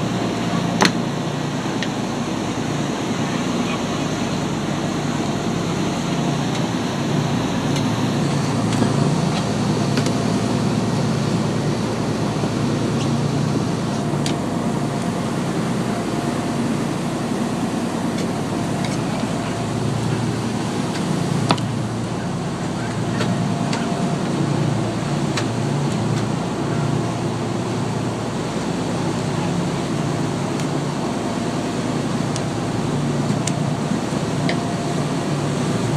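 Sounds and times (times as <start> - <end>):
boat engine droning: 0.0 - 35.9
water rushing from wake: 0.0 - 35.9.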